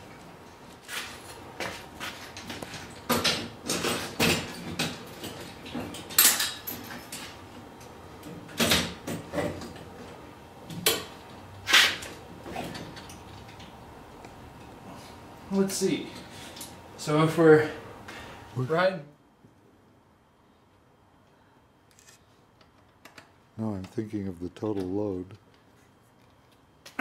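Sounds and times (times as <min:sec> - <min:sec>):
knocks and clatters of bike parts: 0:01.6 - 0:07.4, 0:08.2 - 0:09.9, 0:10.7 - 0:11.3.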